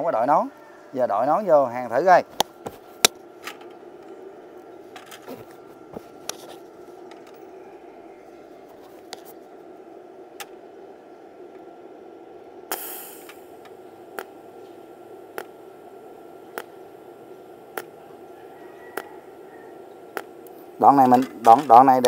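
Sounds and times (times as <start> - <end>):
steady hum: 0.0 - 22.0
welder arc zaps: 12.6 - 22.0
brief hiss: 12.7 - 13.5.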